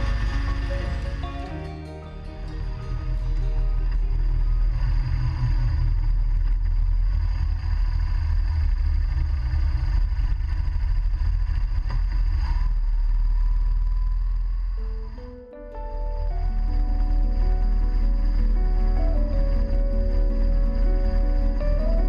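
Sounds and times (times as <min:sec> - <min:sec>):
wind noise: 0:02.6 - 0:22.0.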